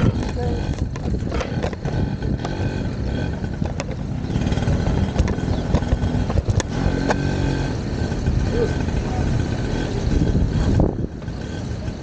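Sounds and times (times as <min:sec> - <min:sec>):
clicks and clatter: 0:00.0 - 0:02.6, 0:03.5 - 0:07.2
motor vehicle engine rumble: 0:00.0 - 0:12.0.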